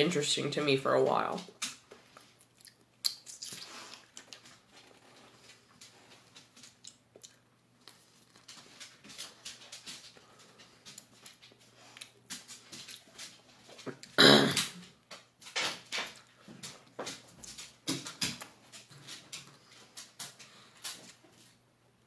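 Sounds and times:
chewing and lip smacks: 0:01.6 - 0:14.2.

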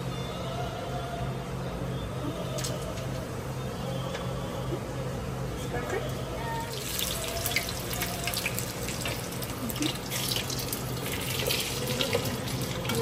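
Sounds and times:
steady low hum: 0:00.0 - 0:13.0
hot oil sizzling and crackling: 0:06.7 - 0:13.0.

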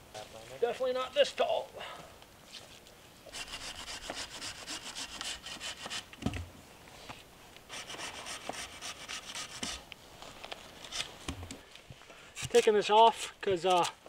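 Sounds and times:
handsaw cutting wood: 0:03.3 - 0:06.1, 0:07.7 - 0:09.8.

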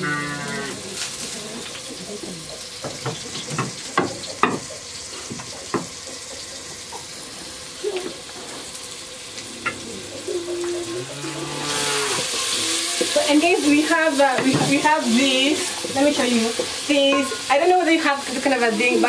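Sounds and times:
flatbread sizzling on a pan: 0:00.0 - 0:19.0
sharp knocks and taps: 0:02.8 - 0:04.7.

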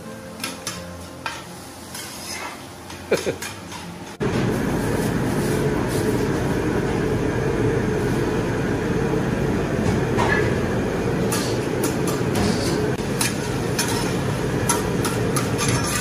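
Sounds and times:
metal spatula scraping griddle: 0:01.2 - 0:02.7, 0:12.4 - 0:16.0.

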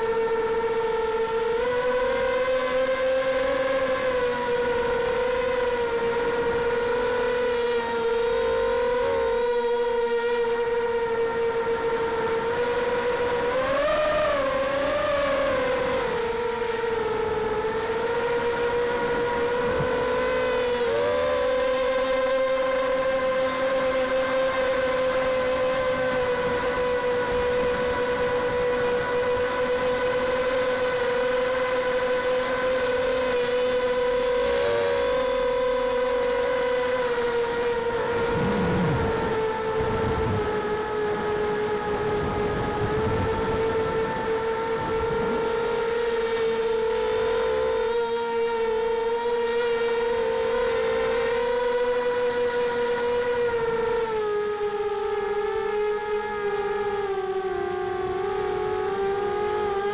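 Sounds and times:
drone motors whining: 0:00.0 - 0:59.9
low whooshes: 0:38.0 - 0:40.4.

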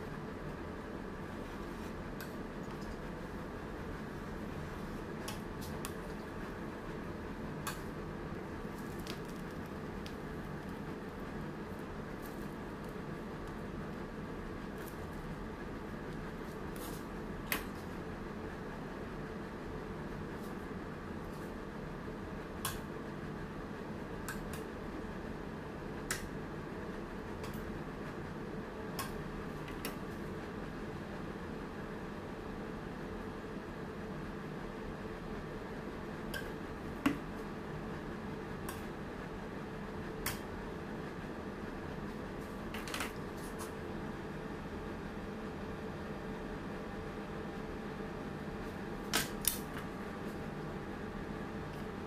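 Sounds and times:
steady background hum: 0:00.0 - 0:52.0.

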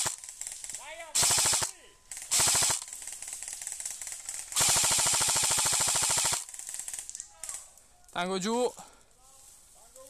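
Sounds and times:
airsoft rifle bursts: 0:00.0 - 0:07.6.

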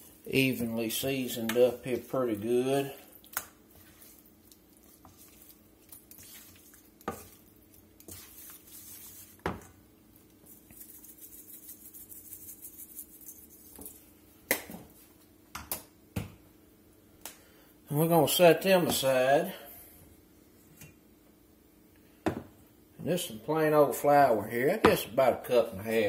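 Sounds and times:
hands squishing raw chicken: 0:01.2 - 0:09.4.

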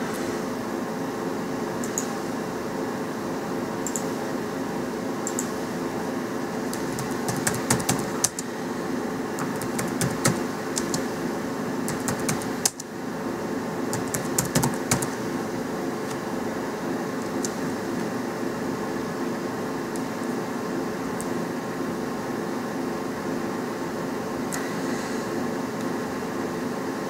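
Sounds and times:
steady background hum: 0:00.0 - 0:27.0
keyboard keystroke clicks: 0:03.8 - 0:04.1, 0:05.2 - 0:05.6, 0:06.7 - 0:08.5, 0:09.4 - 0:11.1, 0:11.9 - 0:12.9, 0:14.0 - 0:15.2.

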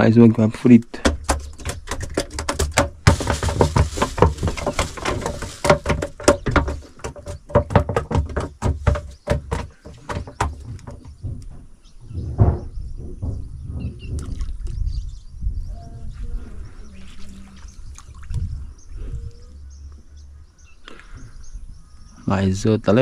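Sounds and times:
fish flopping on boat floor: 0:01.2 - 0:11.2.

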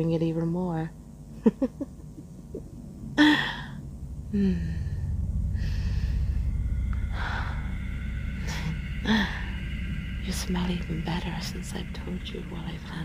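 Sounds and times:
low rumbling drone: 0:00.0 - 0:13.0
woman sighing and breathing: 0:03.2 - 0:09.8.

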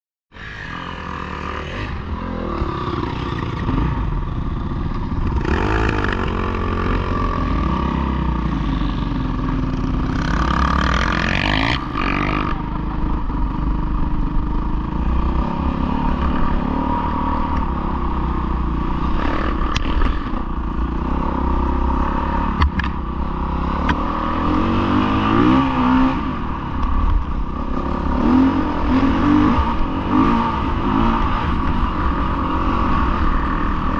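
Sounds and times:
motorcycle engines revving: 0:00.3 - 0:33.9.

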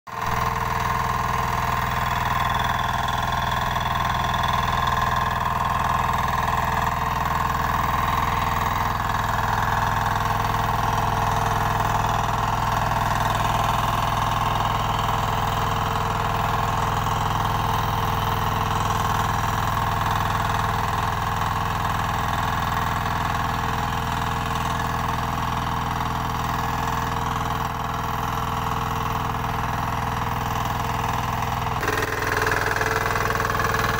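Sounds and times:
tiller engine running: 0:00.1 - 0:33.9
tines tilling soil: 0:31.8 - 0:33.9.

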